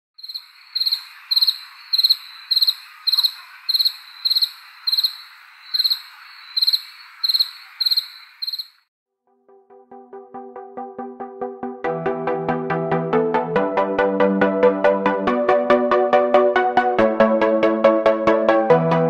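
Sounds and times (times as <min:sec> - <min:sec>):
background insects hissing: 0:00.2 - 0:08.8
cricket chirping: 0:00.2 - 0:08.9.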